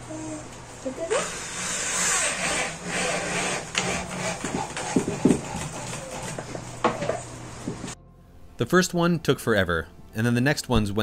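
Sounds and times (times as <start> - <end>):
power drill driving screws: 1.2 - 4.3.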